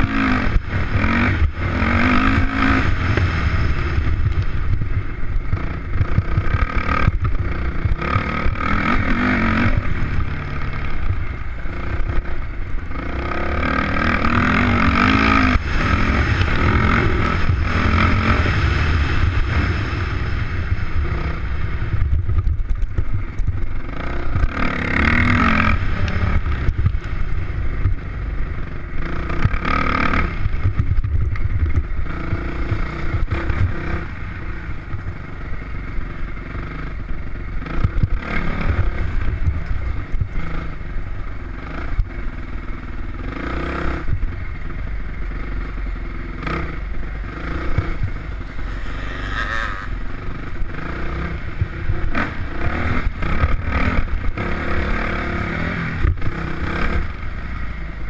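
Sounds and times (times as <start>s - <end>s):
motorcycle engine revving: 0.0s - 58.0s
steady low rumble: 0.0s - 58.0s.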